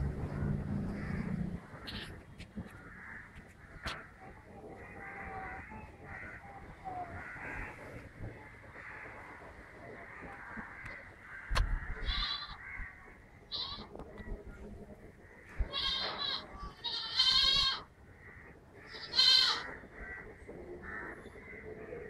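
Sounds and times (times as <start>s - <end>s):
goat bleating: 12.0s - 12.6s, 13.5s - 13.9s, 15.6s - 17.9s, 18.9s - 19.7s.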